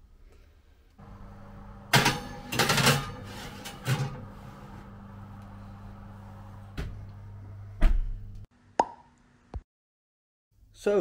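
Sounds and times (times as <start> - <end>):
steady low hum: 1.0 - 8.5
glass dish clattering on oven rack: 1.9 - 4.3.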